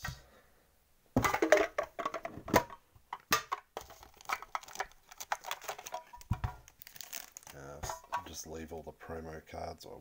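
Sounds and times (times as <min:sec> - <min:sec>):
cards rustling: 0:03.8 - 0:07.7.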